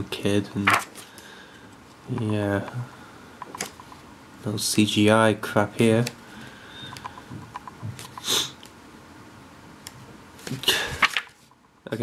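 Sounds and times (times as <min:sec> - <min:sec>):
pages flipping: 0:00.6 - 0:01.2, 0:10.4 - 0:11.5
paper pages rustling: 0:00.6 - 0:01.2, 0:10.4 - 0:11.5.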